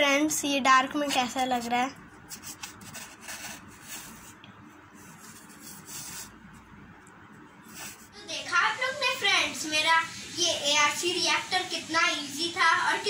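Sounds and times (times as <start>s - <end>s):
hands rubbing and rustling: 2.3s - 6.4s.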